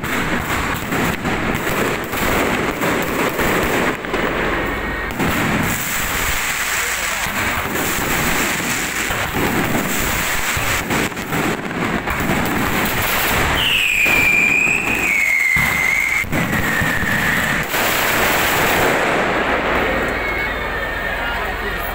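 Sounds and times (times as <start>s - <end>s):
firework pops: 0.0s - 20.2s
crackling spark fountains: 0.0s - 20.8s
descending firework whistle: 0.0s - 21.9s.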